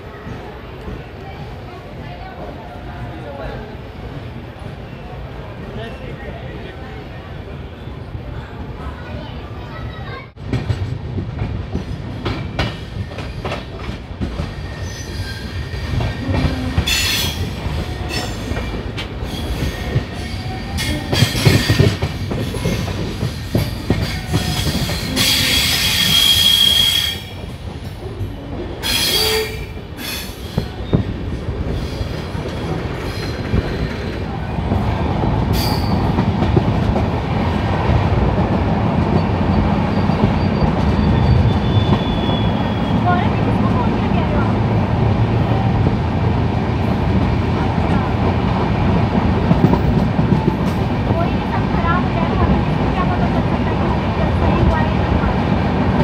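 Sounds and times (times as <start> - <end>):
train wheels clattering over rails: 10.3 - 56.0
train wheel squeal: 14.4 - 27.4, 28.8 - 31.1, 35.5 - 36.2, 39.1 - 43.0.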